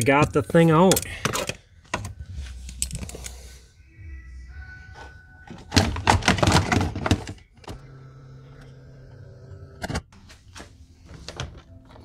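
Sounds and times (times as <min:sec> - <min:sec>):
plastic trim clattering and rattling: 0:05.5 - 0:07.4.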